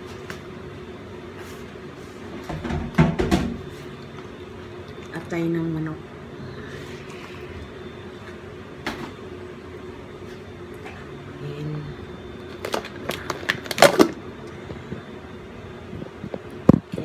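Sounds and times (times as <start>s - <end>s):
low room hum: 0.0s - 17.0s
plastic food packages crinkling: 12.5s - 14.2s.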